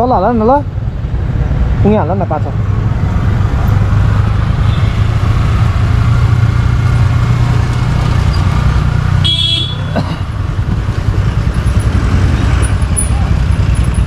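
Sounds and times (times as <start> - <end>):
motorcycle engine rumble: 0.0 - 14.0
road noise: 0.0 - 14.0
vehicle horn beep: 9.2 - 10.0.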